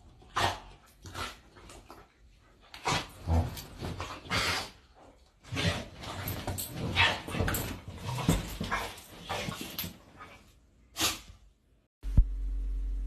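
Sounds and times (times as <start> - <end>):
steady low hum: 12.0 - 13.0.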